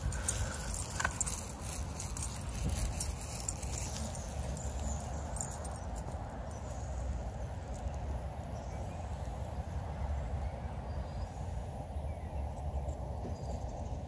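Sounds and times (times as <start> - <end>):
footsteps in dry leaves: 0.0 - 5.6.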